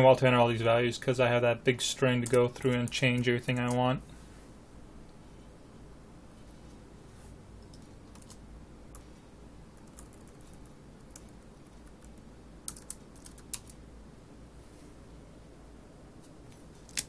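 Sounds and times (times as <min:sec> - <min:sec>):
keyboard typing clicks: 0:09.8 - 0:13.7.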